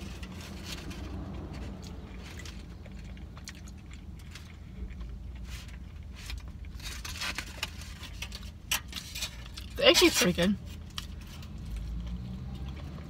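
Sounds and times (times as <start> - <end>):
soft chewing with clicks: 0.9 - 6.8, 10.8 - 13.0.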